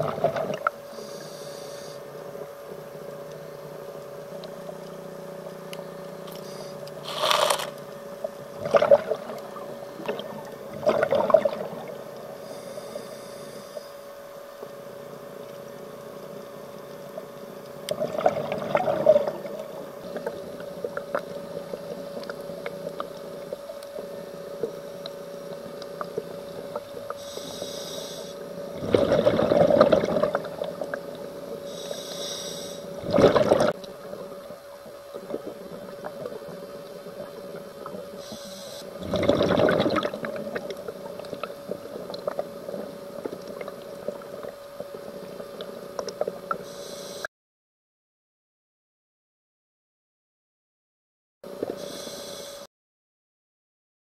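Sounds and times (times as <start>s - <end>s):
steady low hum: 0.0s - 47.3s
scuba regulator bubbling: 17.9s - 23.4s, 28.7s - 32.0s, 33.0s - 34.0s, 37.2s - 46.8s.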